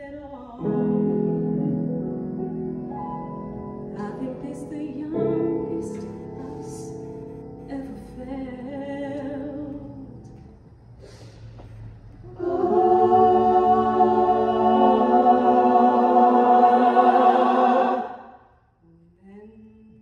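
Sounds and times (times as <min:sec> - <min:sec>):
group singing sustained chords: 0:00.6 - 0:10.6, 0:12.2 - 0:18.8.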